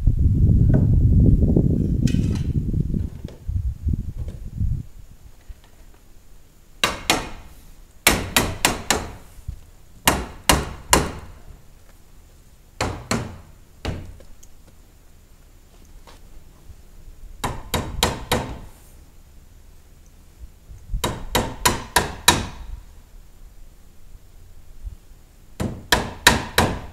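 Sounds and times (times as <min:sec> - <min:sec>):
low rumbling noise: 0:00.0 - 0:15.7.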